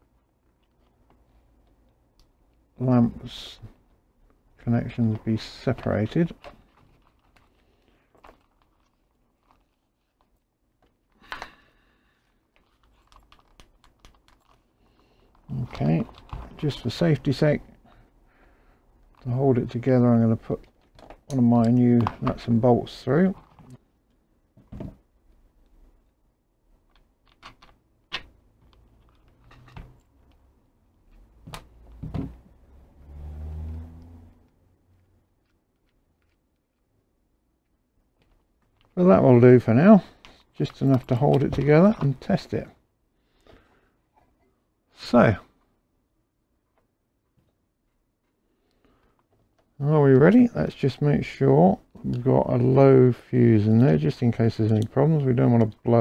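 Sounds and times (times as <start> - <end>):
plastic housing clicks and rustles: 6.3 - 11.5.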